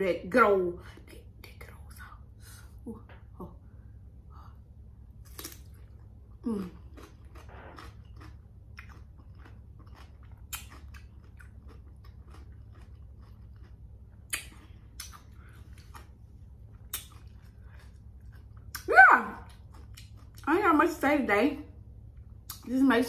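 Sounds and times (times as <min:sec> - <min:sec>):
wet chewing crunches: 0:05.2 - 0:20.5.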